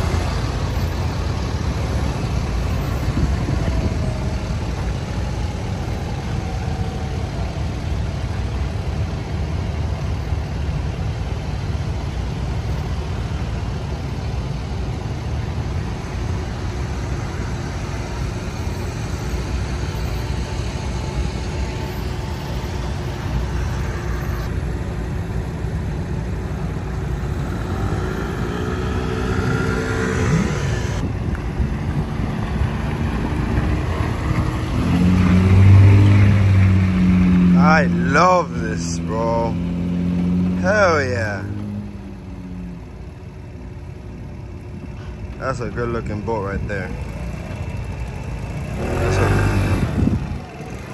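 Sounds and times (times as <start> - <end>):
engine and tyre rumble: 0.0 - 50.9
vehicle engine rising in pitch: 16.6 - 45.1, 46.6 - 50.9.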